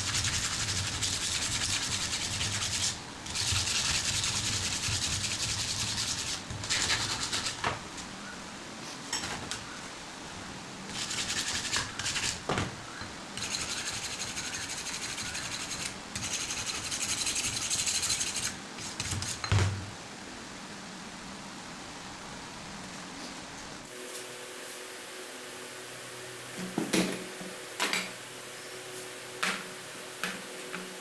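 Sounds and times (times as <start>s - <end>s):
hand sanding rubbing strokes: 0.0s - 7.6s, 10.9s - 12.4s, 13.4s - 19.4s.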